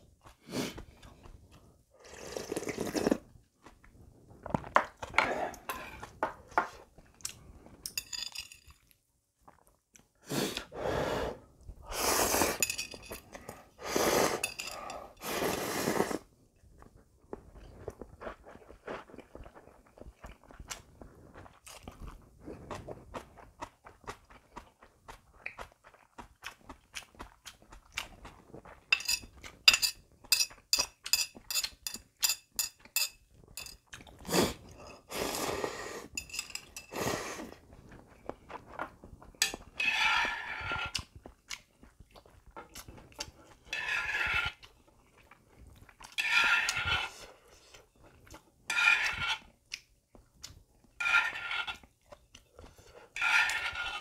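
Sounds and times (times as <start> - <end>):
sipping broth: 2.0 - 3.2
slurping noodles: 2.0 - 3.3, 10.2 - 12.7, 13.4 - 16.3, 34.1 - 36.2, 36.8 - 38.3, 39.6 - 41.2, 43.0 - 44.8, 46.2 - 47.9, 52.6 - 54.0.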